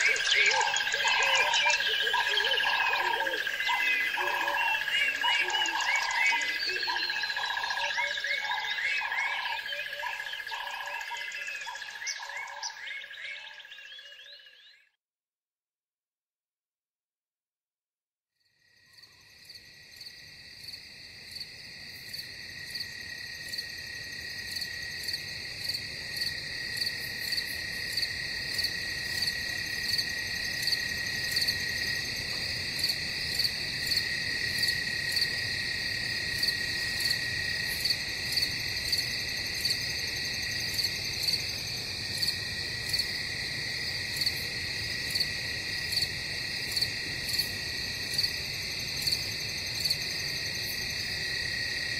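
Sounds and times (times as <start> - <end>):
repeating animal call: 0.0 - 14.4.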